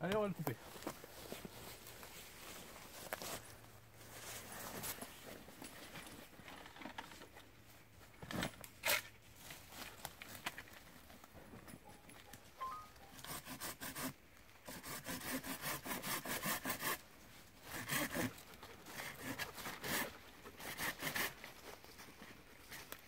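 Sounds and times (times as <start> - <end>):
hand saw rasping through wood: 13.0 - 17.0, 17.6 - 21.4.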